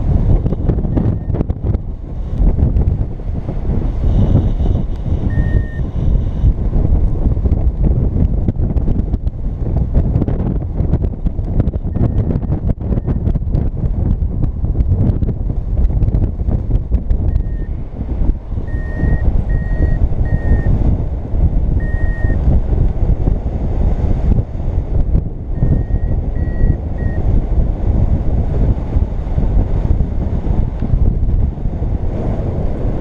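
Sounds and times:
wind rushing over microphone: 0.0 - 33.0
variometer beeping: 0.8 - 1.5, 5.2 - 5.9, 11.8 - 13.3, 17.2 - 17.8, 18.6 - 20.8, 21.8 - 22.4, 25.5 - 27.3.

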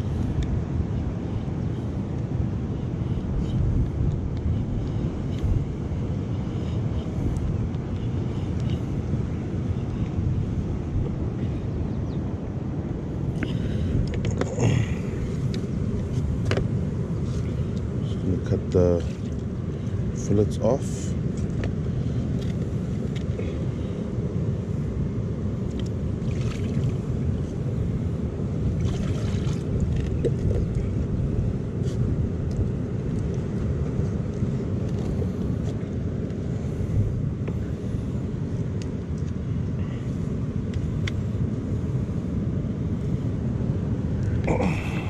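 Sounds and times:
sea surf on rocky shore: 0.0 - 45.0
wind buffeting microphone: 0.0 - 45.0.

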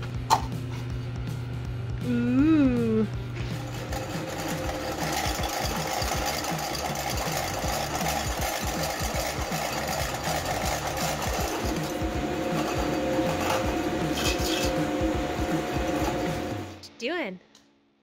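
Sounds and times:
milling machine hum: 3.2 - 16.9
hole saw teeth rattling: 3.6 - 11.8.

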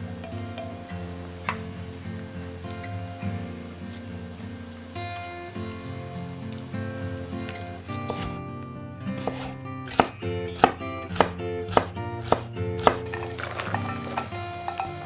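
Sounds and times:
knife chopping on wooden board: 7.9 - 8.4, 9.2 - 14.3.

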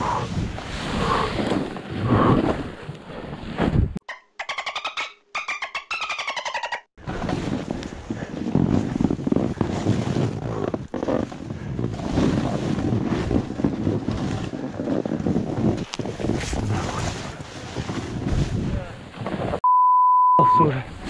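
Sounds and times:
snowboard scraping through snow: 0.2 - 3.9, 7.0 - 19.6.

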